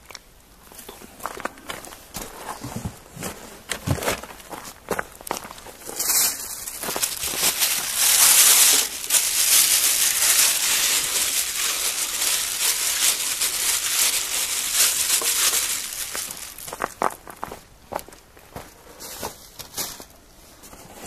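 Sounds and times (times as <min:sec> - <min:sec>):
plastic bag crinkling: 0:03.8 - 0:17.4.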